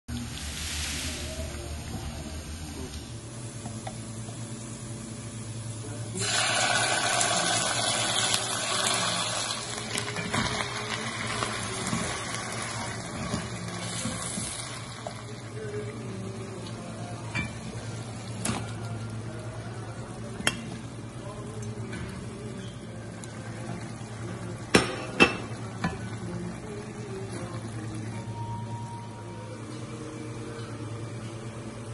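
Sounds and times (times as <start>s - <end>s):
hot oil sizzling: 0.1s - 2.7s, 6.2s - 15.8s.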